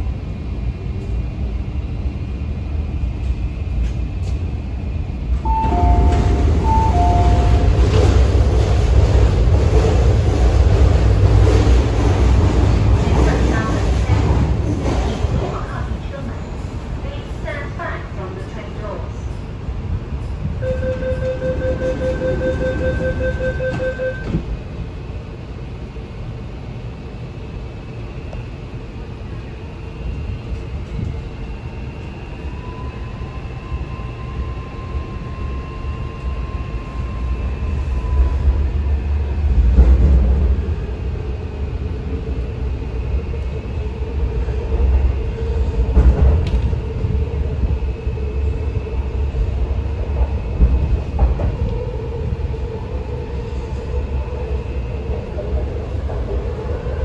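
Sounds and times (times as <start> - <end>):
train running rumble: 0.0 - 57.0
door-closing beeps: 5.5 - 7.8, 20.6 - 24.4.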